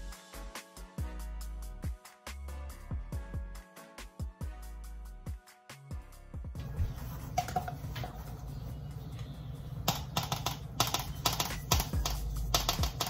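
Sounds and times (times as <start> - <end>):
spoon stirring in cup: 7.0 - 8.8.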